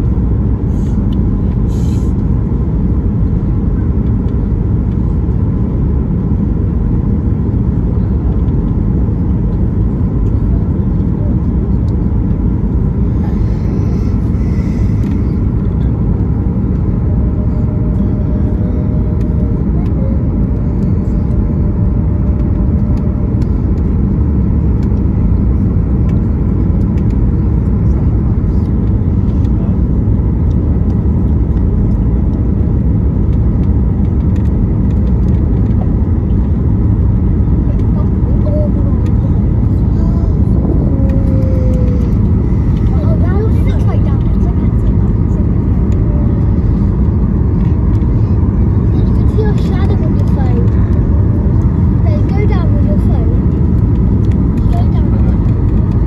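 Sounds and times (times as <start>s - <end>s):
jet engines roaring: 0.0s - 56.0s
air rushing over wing: 12.1s - 56.0s.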